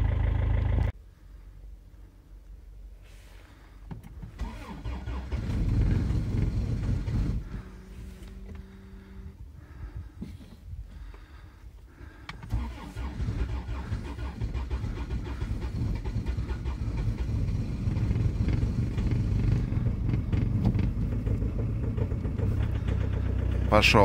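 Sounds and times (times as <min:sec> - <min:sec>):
diesel engine cranking on starter: 0:04.1 - 0:09.9, 0:11.0 - 0:24.0.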